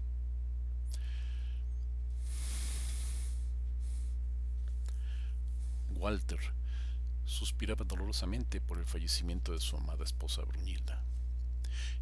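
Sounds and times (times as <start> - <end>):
steady low hum: 0.0 - 12.0
short hiss: 2.2 - 4.1.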